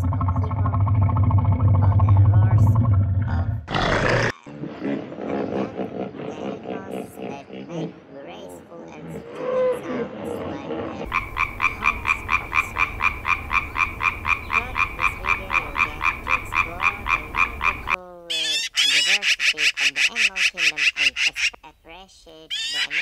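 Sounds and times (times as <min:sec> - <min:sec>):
frog croaking: 0:03.2 - 0:21.8, 0:22.5 - 0:23.0
bird call with trill: 0:11.1 - 0:21.6, 0:22.5 - 0:23.0.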